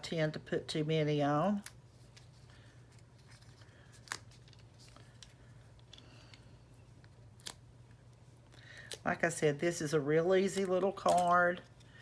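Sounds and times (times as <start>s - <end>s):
low steady hum: 0.0s - 12.0s
cardstock handling: 1.6s - 6.4s, 10.4s - 12.0s.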